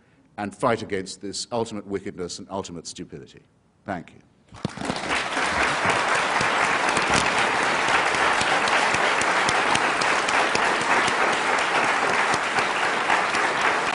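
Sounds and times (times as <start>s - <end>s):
audience applauding: 4.6s - 13.9s.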